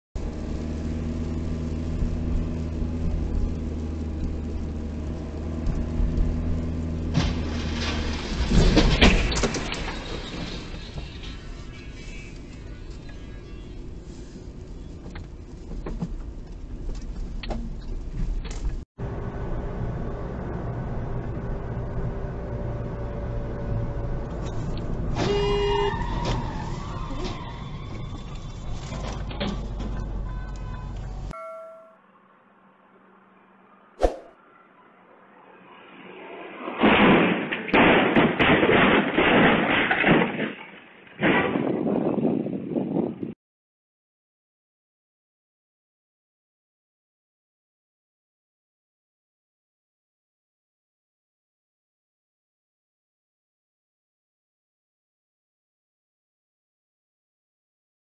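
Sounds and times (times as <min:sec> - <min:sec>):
car engine and tyres drone: 0:00.2 - 0:08.6, 0:19.0 - 0:25.2, 0:32.0 - 0:37.0
car horn honk: 0:25.2 - 0:26.0, 0:30.2 - 0:32.0.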